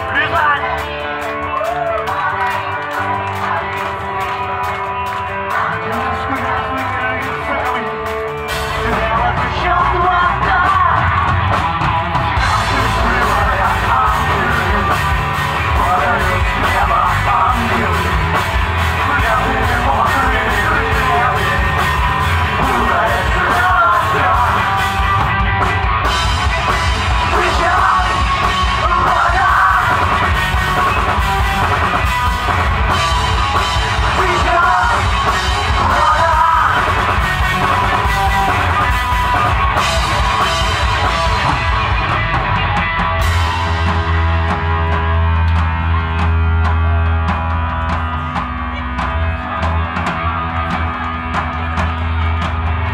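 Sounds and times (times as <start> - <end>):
bass guitar: 0.0 - 52.9
drum kit: 0.0 - 52.9
electric guitar: 0.0 - 52.9
person singing into microphone: 5.4 - 11.3, 12.4 - 25.0, 27.2 - 31.2, 34.0 - 38.0.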